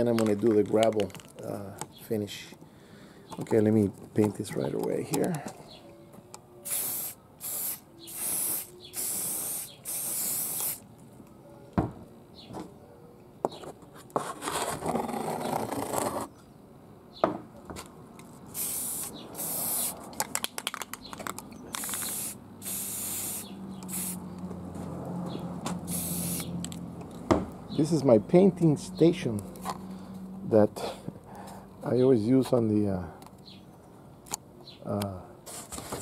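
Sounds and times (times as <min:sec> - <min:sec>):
aerosol spray can hissing: 0:06.6 - 0:10.8, 0:18.6 - 0:20.0, 0:21.8 - 0:24.2, 0:25.8 - 0:26.5.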